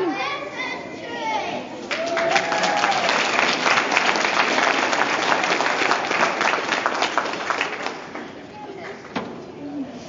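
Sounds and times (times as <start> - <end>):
audience applauding: 1.9 - 8.4.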